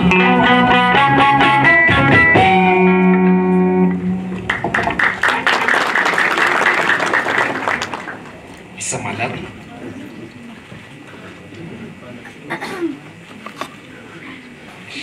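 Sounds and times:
plucked string music: 0.0 - 4.4
applause and clapping: 4.4 - 8.5.

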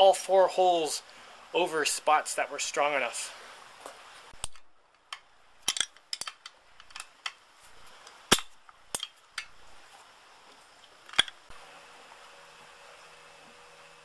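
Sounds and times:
wrench clinking on metal: 5.7 - 7.0.

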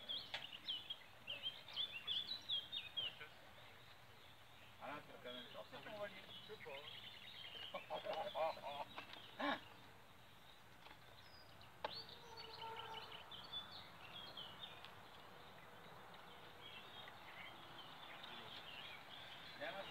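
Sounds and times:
faint birdsong: 0.0 - 19.9.

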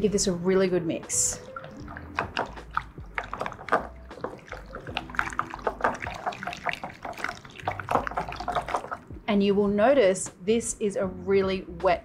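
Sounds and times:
wet filling squelching: 1.2 - 9.2.

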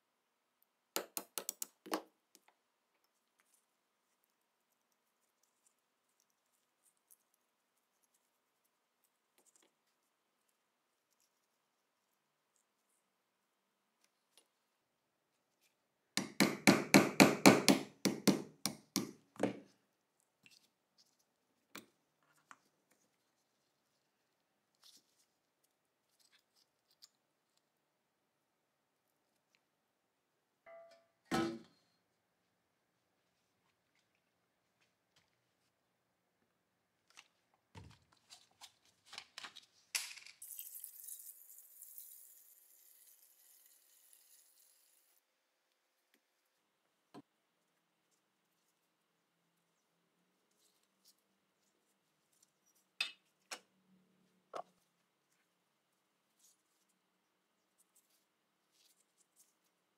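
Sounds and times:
liquid pouring and foaming: 40.4 - 44.8.

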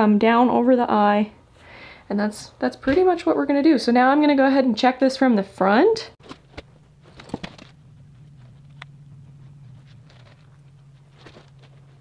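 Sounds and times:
steady low hum: 6.1 - 12.0.

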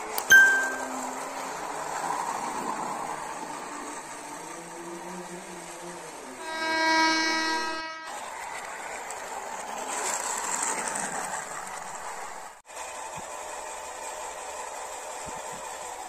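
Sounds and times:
toy trains rattling on plastic track: 0.9 - 6.4, 8.1 - 16.0
toy train horn: 6.4 - 8.2.

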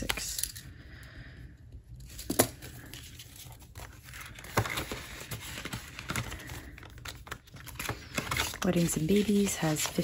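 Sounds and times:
paper banknotes rustling: 2.0 - 10.0.

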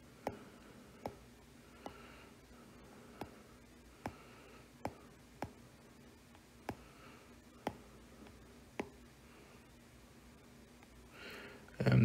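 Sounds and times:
faint room hiss: 0.0 - 12.0
taps on a touchscreen: 0.2 - 0.4, 1.0 - 1.2, 3.2 - 3.4, 4.0 - 4.2, 4.8 - 5.6, 6.6 - 6.9, 7.6 - 9.0.

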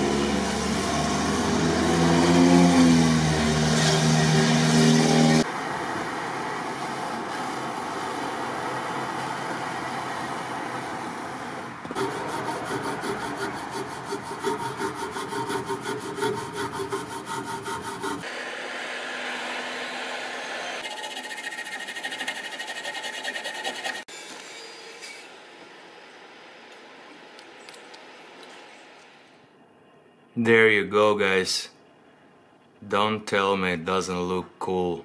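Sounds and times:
wire brush scrubbing metal: 12.0 - 18.3, 20.8 - 24.1.

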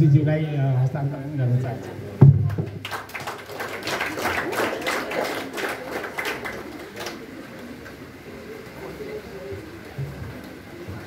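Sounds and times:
small audience clapping: 2.4 - 8.0.

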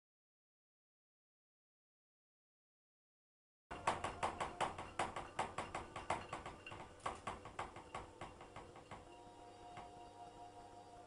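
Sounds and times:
light knocks in washing machine drum: 3.7 - 9.1.

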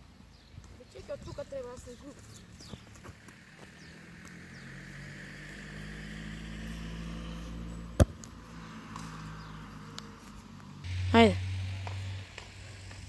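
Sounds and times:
passing motor vehicle hum: 1.1 - 13.0
football kick thud: 8.0 - 8.2.

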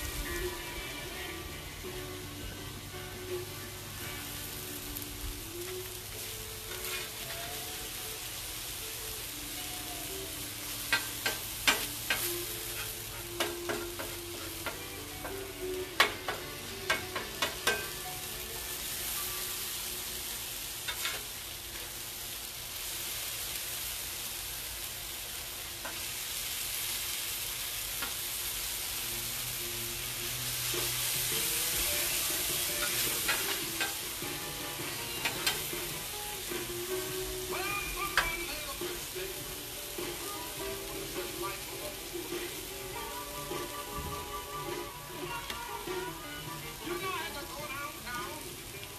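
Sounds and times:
onions sizzling on a griddle: 0.0 - 48.9
metal spatula scraping griddle: 5.6 - 8.2, 10.6 - 21.9, 28.0 - 47.4.

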